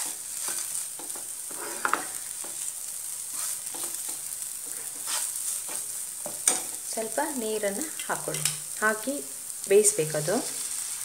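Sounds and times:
spoon scraping pan: 0.0 - 6.9
vegetables sizzling in oil: 0.0 - 11.0.

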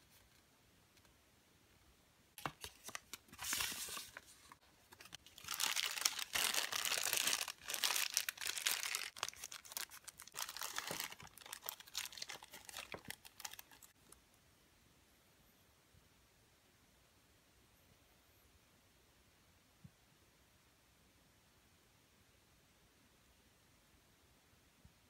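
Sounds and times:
plastic bag crinkling: 2.4 - 13.9.

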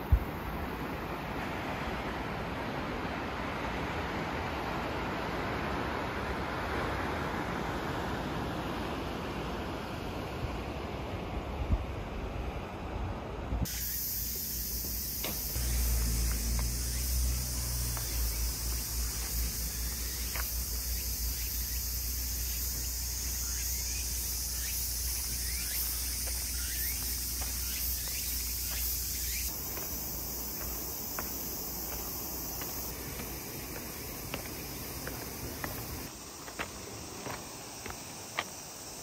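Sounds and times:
cicadas buzzing: 0.0 - 2.9, 13.6 - 39.0
wind rumble on microphone: 10.4 - 13.7.

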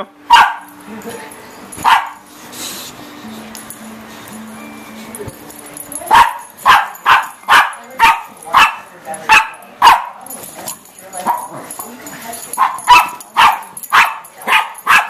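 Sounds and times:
dog barking: 0.3 - 0.8, 1.8 - 2.2, 6.1 - 10.4, 11.2 - 11.6, 12.5 - 15.0.

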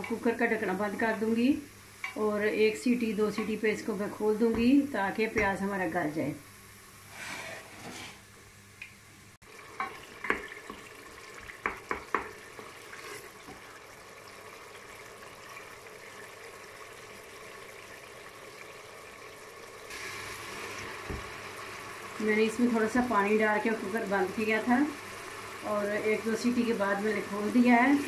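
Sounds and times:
water sizzling and bubbling: 9.4 - 28.0
wooden spoon knocking pot: 11.6 - 12.4.

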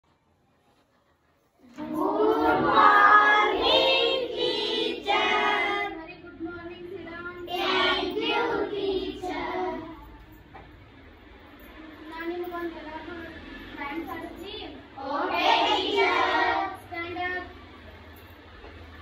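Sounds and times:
girl singing: 1.7 - 10.2.

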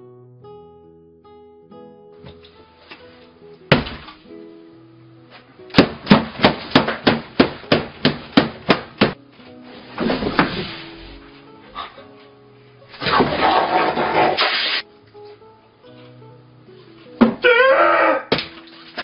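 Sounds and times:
light music: 0.0 - 14.0, 14.8 - 19.0
object slammed against a table: 3.7 - 4.2.

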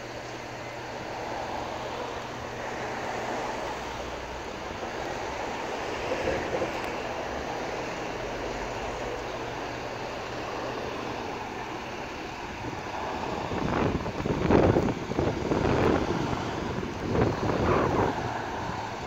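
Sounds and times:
street traffic: 0.0 - 19.0.

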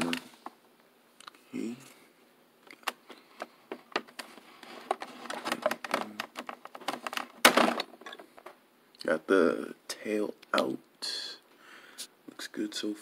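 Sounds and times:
plastic packaging crackling: 4.0 - 8.5.

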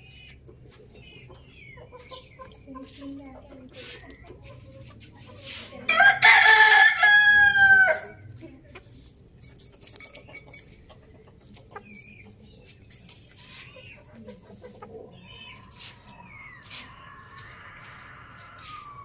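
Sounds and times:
beaks pecking on concrete: 0.0 - 19.0
hens clucking softly: 0.2 - 5.8, 10.0 - 19.0
rooster crowing: 5.9 - 8.2, 16.3 - 19.0.

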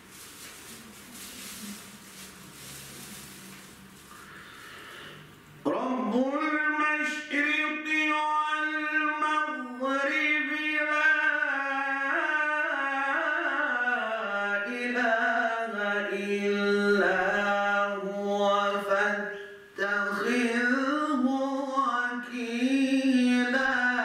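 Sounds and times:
man reciting melodically: 5.6 - 24.0.

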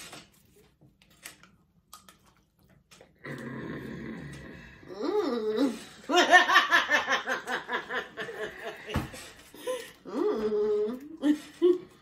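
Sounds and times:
woman laughing hard: 6.0 - 9.8.

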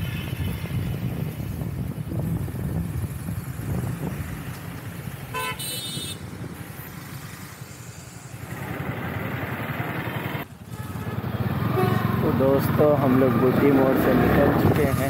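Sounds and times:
vehicle horn honking: 5.3 - 6.2, 10.7 - 12.2
motorcycle engine running: 8.4 - 12.7.

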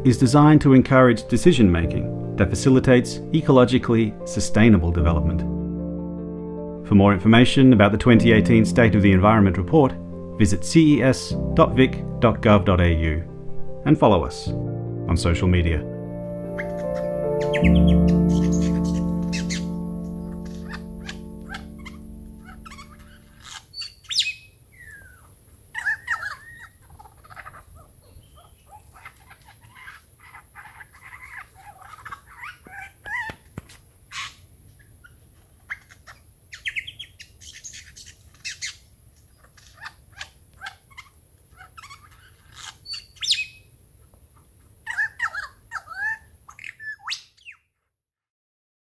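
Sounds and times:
wild birds calling: 16.2 - 33.4, 44.8 - 47.5.

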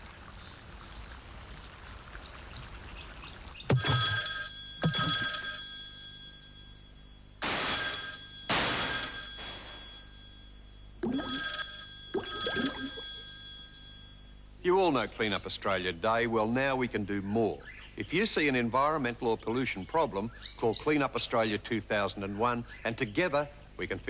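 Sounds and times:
telephone bell ringing: 3.7 - 14.6.

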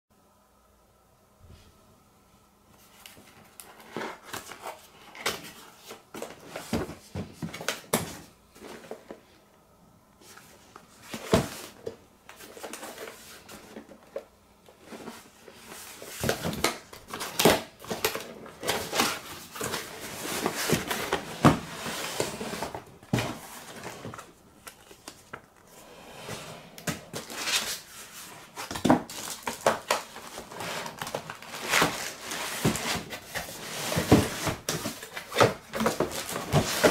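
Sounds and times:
plastic wrapping rustling: 10.2 - 25.9, 26.8 - 36.9.

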